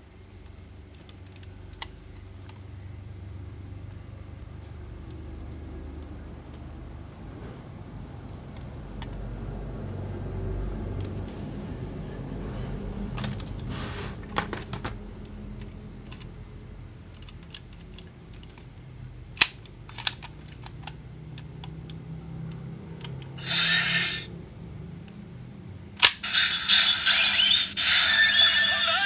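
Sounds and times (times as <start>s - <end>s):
short hiss: 13.7s - 14.2s
plastic toy clicks and rubbing: 14.3s - 16.4s, 17.1s - 24.3s
toy electronic sound effect: 23.4s - 24.3s, 26.1s - 29.0s.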